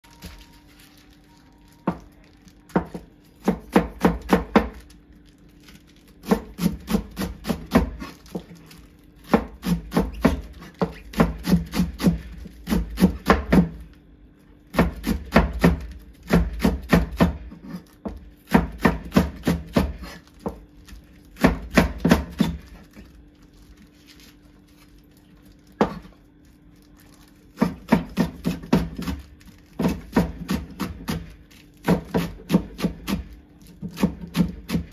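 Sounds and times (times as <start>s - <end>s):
knife chopping on cutting board: 2.7s - 4.8s, 6.2s - 8.5s, 9.2s - 13.8s, 14.7s - 20.6s, 21.4s - 22.8s, 25.8s - 26.1s, 27.5s - 29.2s, 29.8s - 34.9s.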